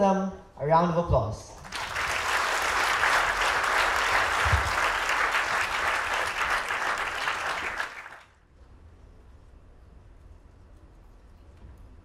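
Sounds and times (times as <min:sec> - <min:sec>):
audience applauding: 0:01.6 - 0:08.4.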